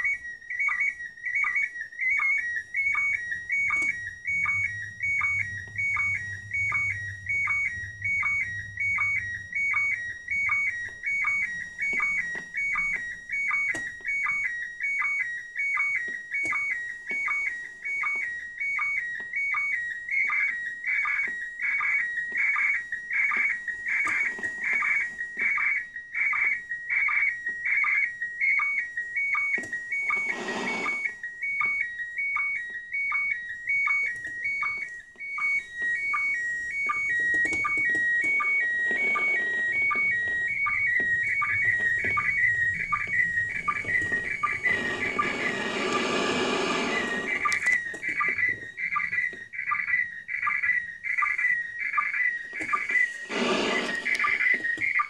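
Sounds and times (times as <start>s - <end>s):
whistling tone stepping in pitch: 2.8s - 13.0s
low sync blips: 2.9s - 13.7s, 36.1s - 48.7s
radio static: 30.1s - 31.0s, 43.6s - 47.7s, 52.6s - 54.6s.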